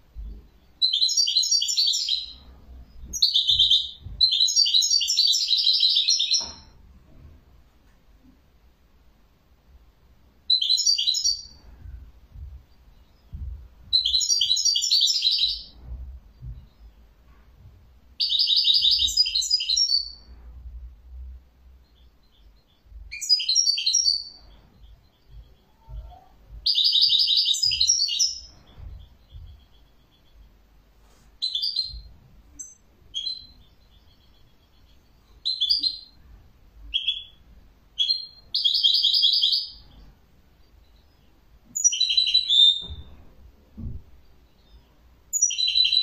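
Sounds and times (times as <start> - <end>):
finch twittering song: 0.1 - 6.8, 10.4 - 20.3, 21.1 - 30.7, 31.3 - 46.0.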